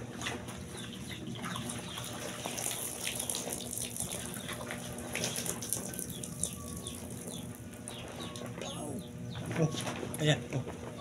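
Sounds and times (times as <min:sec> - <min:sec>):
water splashing on plastic: 0:01.6 - 0:06.6.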